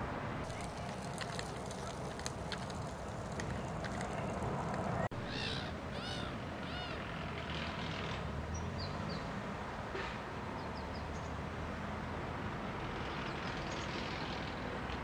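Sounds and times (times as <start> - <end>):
low outdoor rumble: 0.0 - 8.2
footsteps on gravel: 0.5 - 5.0
pram wheels clicking on gravel: 0.5 - 5.1
songbird calls: 5.2 - 7.0.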